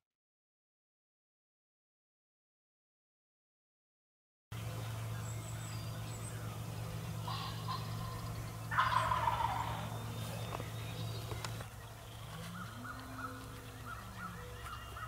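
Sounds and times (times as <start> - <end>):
turkey gobbling: 6.4 - 15.0.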